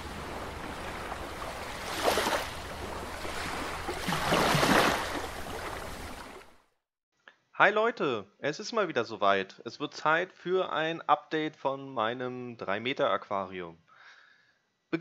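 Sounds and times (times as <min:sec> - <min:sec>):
ocean waves washing in: 0:00.0 - 0:06.6.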